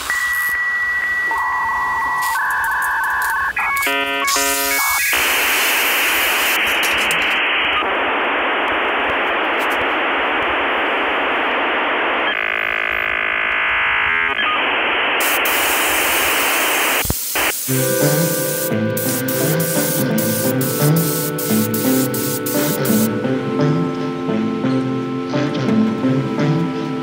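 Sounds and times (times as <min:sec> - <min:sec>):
steady electronic hiss: 0:00.0 - 0:12.3, 0:13.8 - 0:25.2
buzzy tonal sound: 0:17.7 - 0:27.0.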